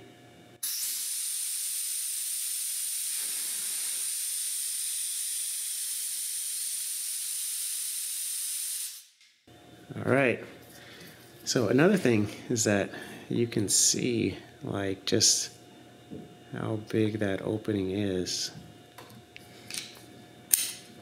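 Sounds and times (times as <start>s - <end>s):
compressed air hissing: 0.6s - 9.2s.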